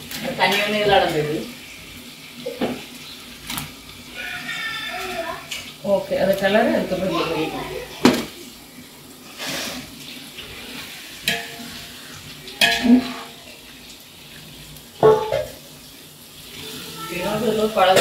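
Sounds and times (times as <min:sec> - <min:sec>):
masala sizzling: 0:00.0 - 0:18.0
metal ladle clanking against pot: 0:11.2 - 0:11.7, 0:12.6 - 0:13.1, 0:15.0 - 0:15.6.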